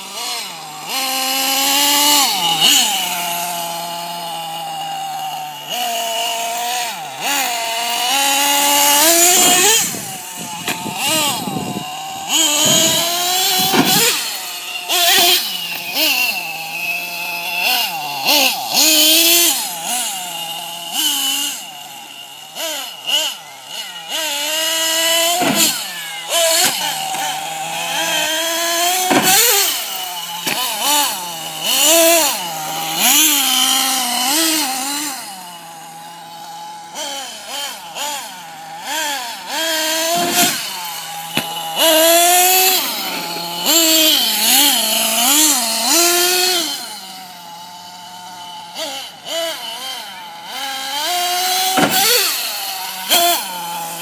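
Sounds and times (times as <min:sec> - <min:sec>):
small two-stroke engine revving: 0:00.0 - 0:54.0.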